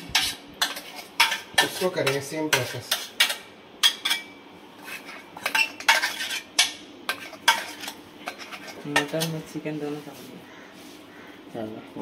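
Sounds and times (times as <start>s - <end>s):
metal spoon scraping and clinking: 0.0s - 9.4s.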